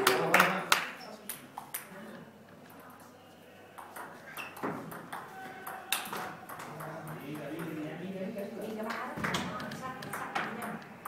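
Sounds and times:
table tennis ball hits: 3.8 - 7.8.

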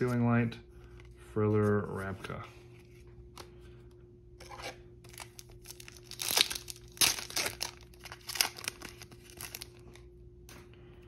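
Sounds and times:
foil wrapper crinkling and tearing: 5.1 - 10.0.

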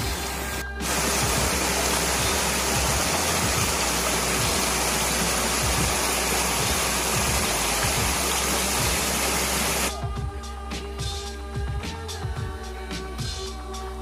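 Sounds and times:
stream rushing over rocks: 0.8 - 9.9.

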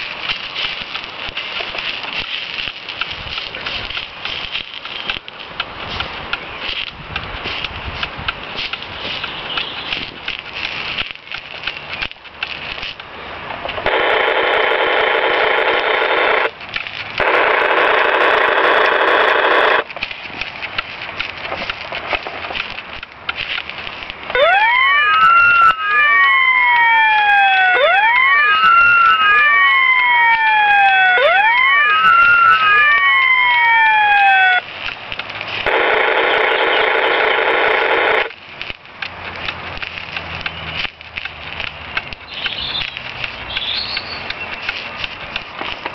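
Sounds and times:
toy siren buzzing blare: 13.9 - 16.5, 17.2 - 19.8, 24.3 - 34.6, 35.7 - 38.3
toy siren wailing: 24.3 - 34.6.

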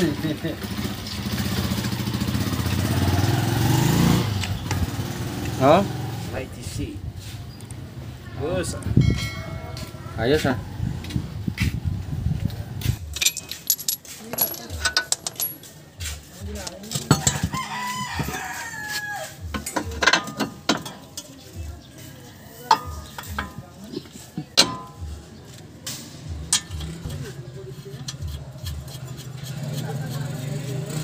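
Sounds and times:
metallic clinks of tools: 13.0 - 15.8
rooster crowing: 17.1 - 19.5.

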